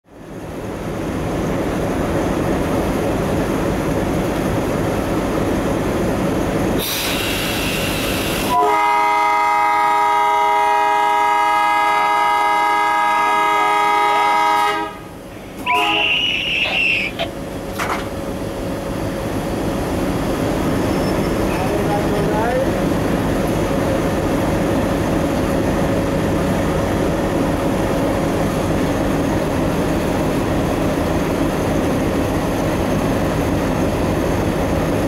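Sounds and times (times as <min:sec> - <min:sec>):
diesel locomotive engine running: 0:00.1 - 0:35.0
brief air hiss: 0:06.8 - 0:08.6
locomotive air horn blast: 0:06.8 - 0:17.1.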